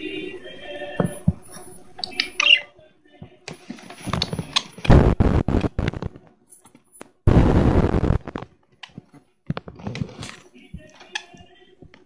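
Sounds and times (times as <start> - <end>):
finch chirps: 2.0 - 2.7.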